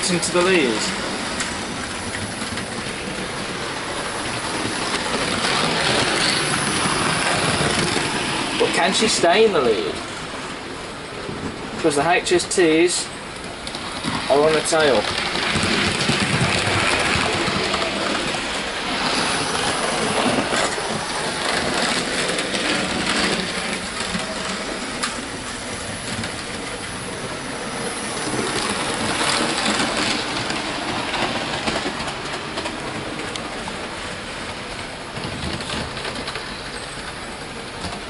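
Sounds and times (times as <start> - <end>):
model trains rumbling on track: 0.0 - 38.0
clicks over rail joints: 34.6 - 38.0.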